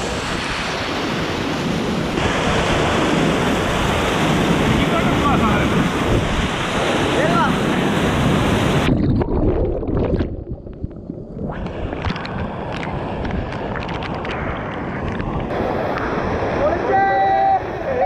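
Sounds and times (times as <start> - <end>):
waterfall roaring: 2.1 - 5.7, 6.7 - 8.9
water splashes and drips: 11.6 - 15.5.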